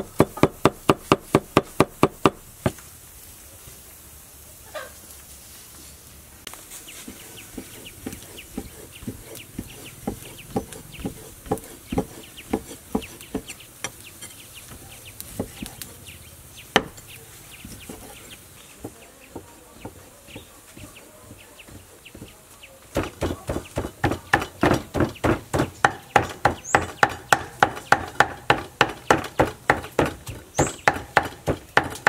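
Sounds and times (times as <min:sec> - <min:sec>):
chickens clucking: 0:06.7 - 0:28.2.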